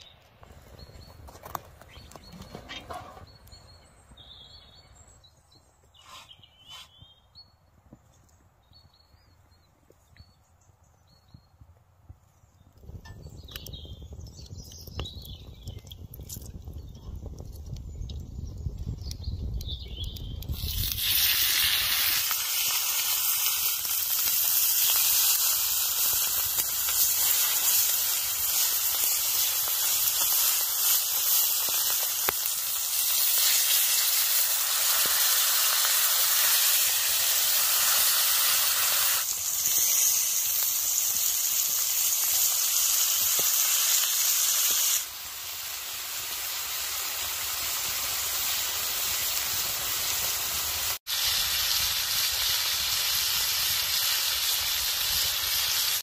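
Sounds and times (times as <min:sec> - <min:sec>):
steaks sizzling on griddle: 0:20.5 - 0:56.0.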